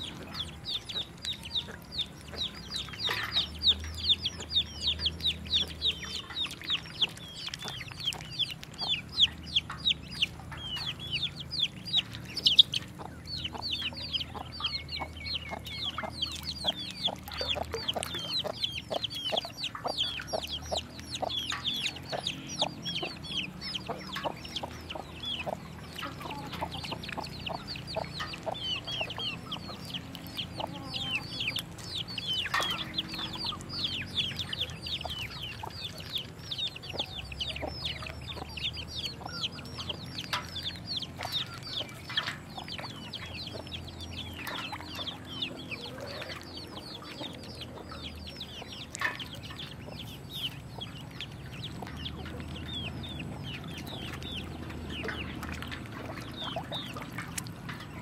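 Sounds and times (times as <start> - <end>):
ducklings peeping: 0.0 - 58.0.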